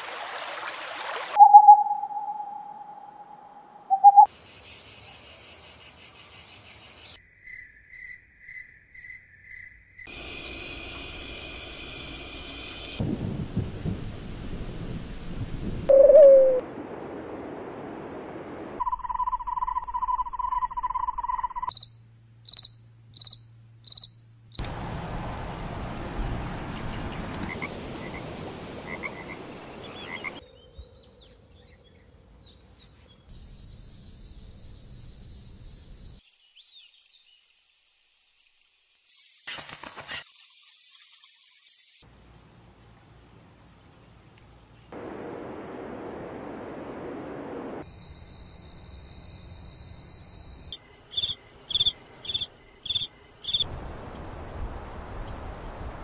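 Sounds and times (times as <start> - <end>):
evenly spaced chirps: 1.4 - 4.3
cricket-like trills: 1.4 - 13.0, 18.8 - 24.7, 33.3 - 42.0, 47.8 - 53.7.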